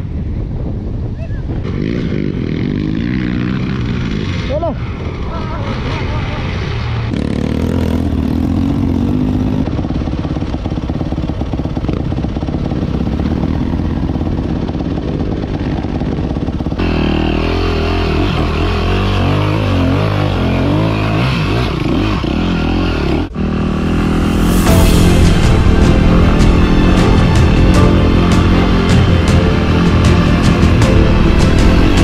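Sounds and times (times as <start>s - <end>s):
dirt bike engines running: 0.0s - 32.0s
dirt bike engine revving: 1.6s - 32.0s.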